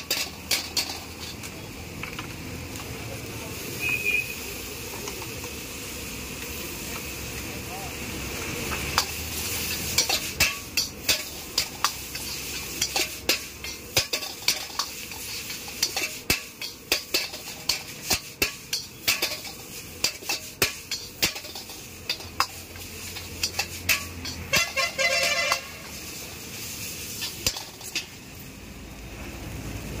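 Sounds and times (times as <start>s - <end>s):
metal ladle clanking on wok: 0.0s - 1.6s, 8.9s - 26.0s, 27.2s - 28.2s
frying sizzle: 0.0s - 30.0s.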